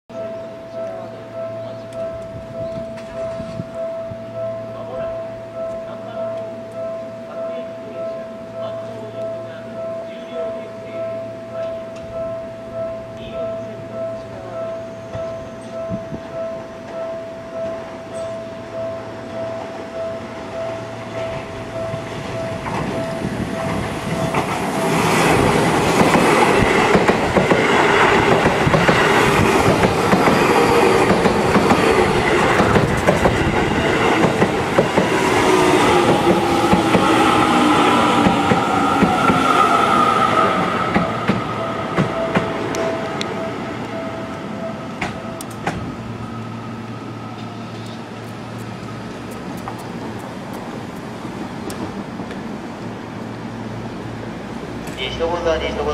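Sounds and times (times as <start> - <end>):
electric train motor whine: 18.7 - 49.3
wheels clattering over rails: 21.3 - 43.6.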